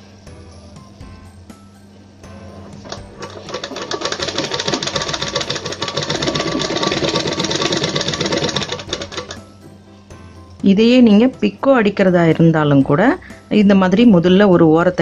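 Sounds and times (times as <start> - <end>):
sewing machine stitching: 2.8 - 9.4.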